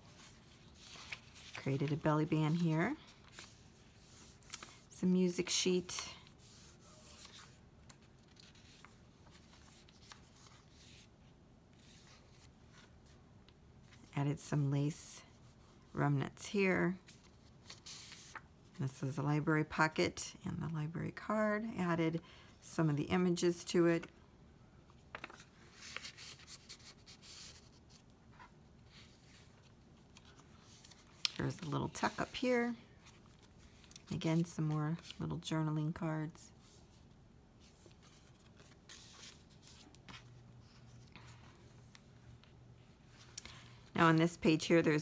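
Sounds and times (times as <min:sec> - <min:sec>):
paper pages rustling: 0:00.0 - 0:11.1, 0:16.9 - 0:18.4, 0:24.9 - 0:35.5, 0:37.6 - 0:44.6.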